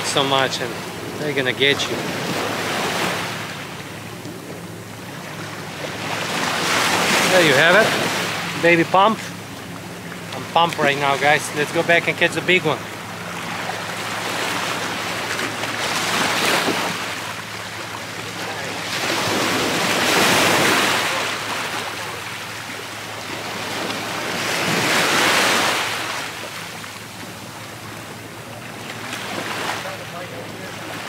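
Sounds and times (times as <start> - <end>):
waves washing over rocks: 5.2 - 9.2, 10.3 - 26.8.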